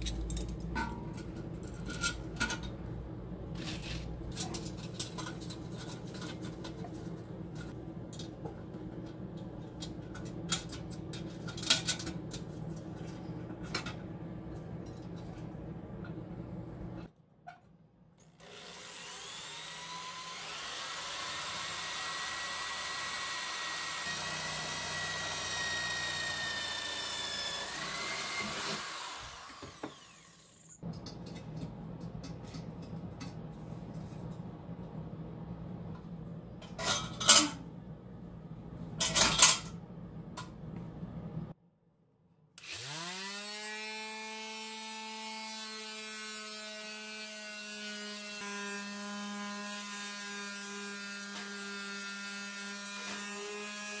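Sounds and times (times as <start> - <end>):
metal cutting noise: 18.4 - 30.8
power tool motor whining: 18.4 - 30.8.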